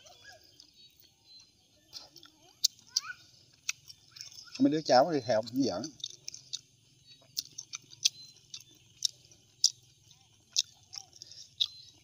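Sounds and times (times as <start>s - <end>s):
person chewing crunchy fish: 0.0s - 12.0s.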